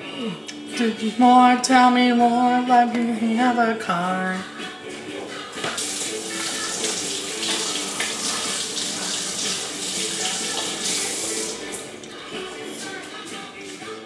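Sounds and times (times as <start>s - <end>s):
tap water running into sink: 5.7s - 11.8s.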